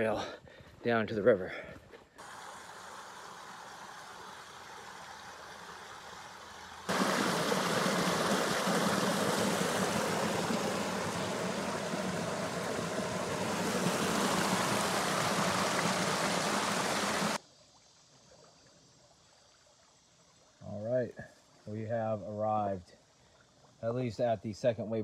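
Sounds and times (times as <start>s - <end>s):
creek water rushing: 2.2s - 17.4s.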